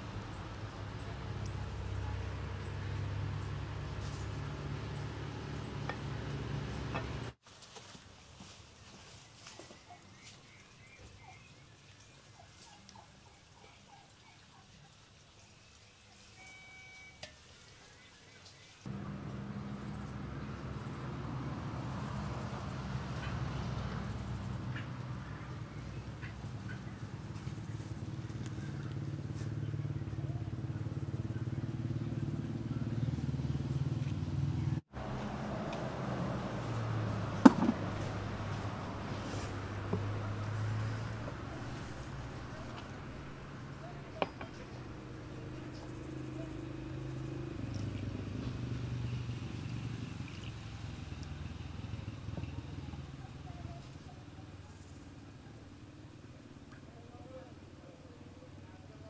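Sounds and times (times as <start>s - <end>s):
faint high chirps: 15.7s - 17.3s
small engine running: 18.9s - 56.1s.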